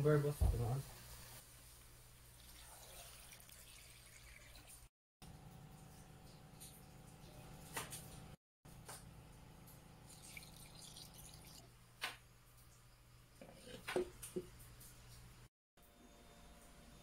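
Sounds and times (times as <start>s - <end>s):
liquid trickling into a pot: 1.6s - 4.9s, 9.6s - 11.7s.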